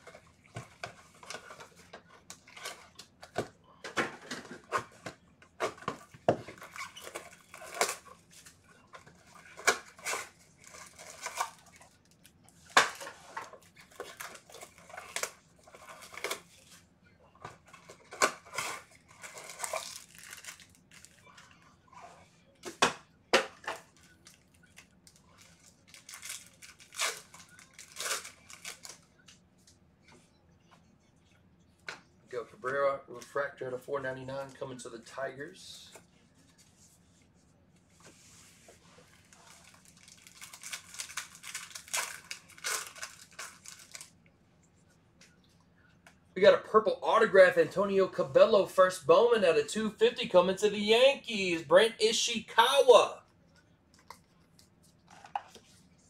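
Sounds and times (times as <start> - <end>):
foil packs crinkling: 6.5 - 16.5, 17.7 - 21.5, 23.9 - 29.0, 39.1 - 44.2
wrapping tearing: 6.6 - 16.6, 17.7 - 21.5, 23.8 - 29.0, 39.0 - 44.2.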